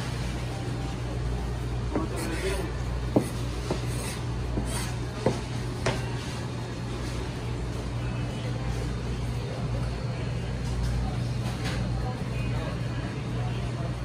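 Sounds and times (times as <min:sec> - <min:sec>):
kitchen equipment humming: 0:00.0 - 0:14.0
knife chopping on cutting board: 0:03.1 - 0:06.0.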